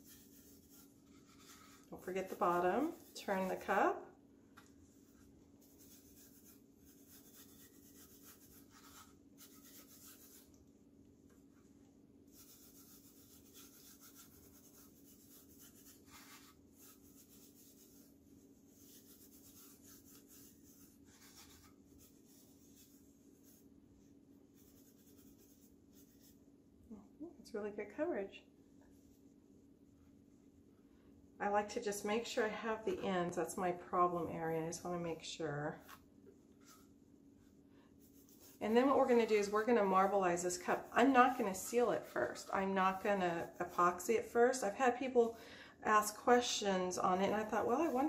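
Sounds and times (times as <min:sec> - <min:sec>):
hands rubbing glitter on metal: 0:00.0 - 0:03.7, 0:05.6 - 0:10.5, 0:12.3 - 0:23.6, 0:24.5 - 0:26.3, 0:38.0 - 0:44.1
faint steady hum: 0:00.0 - 0:48.0.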